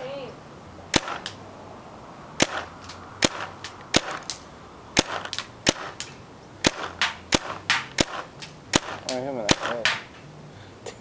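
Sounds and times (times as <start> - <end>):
paintball gun shots: 0.9 - 1.4, 2.4 - 4.4, 5.0 - 10.1.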